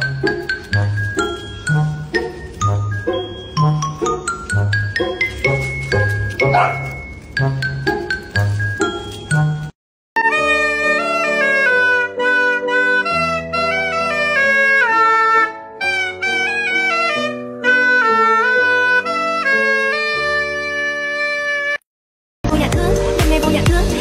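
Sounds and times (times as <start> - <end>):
reed horn melody: 4.5 - 7.8, 10.2 - 21.8.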